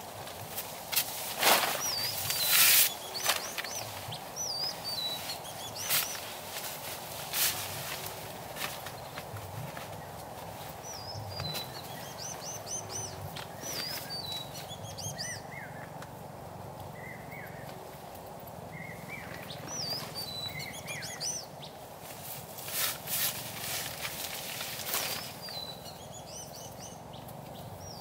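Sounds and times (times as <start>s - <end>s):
songbird whistling: 18.8s - 21.5s.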